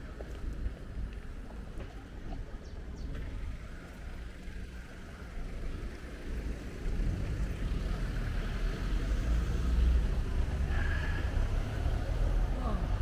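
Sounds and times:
vehicle passing close by: 6.4 - 13.0.

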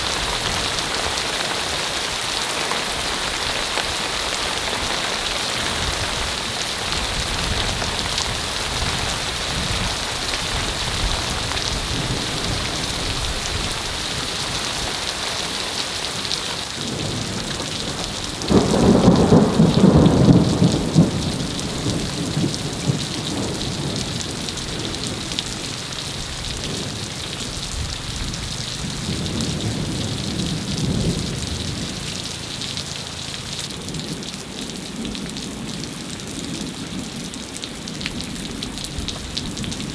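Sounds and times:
heavy rain: 0.0 - 39.9
thunder rolling: 16.9 - 25.2.

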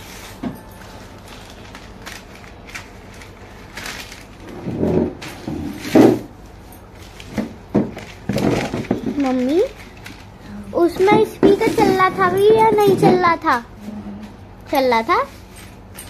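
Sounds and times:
newspaper rustling and crinkling: 0.0 - 6.0, 6.9 - 12.3.

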